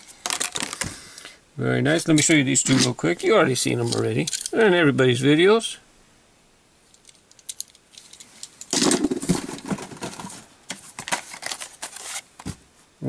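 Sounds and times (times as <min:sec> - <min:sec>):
blister packs rustling and clacking: 0:07.6 - 0:12.5.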